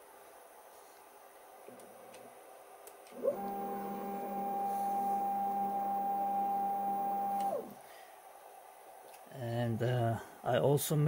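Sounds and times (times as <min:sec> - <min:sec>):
motor whine: 0:03.2 - 0:07.8.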